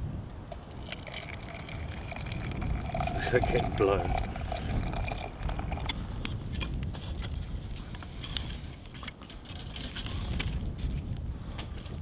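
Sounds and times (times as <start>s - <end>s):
wind rumble on microphone: 0.0s - 12.0s
water poured into steel mug: 0.6s - 6.0s
campfire crackling and popping: 0.6s - 7.5s.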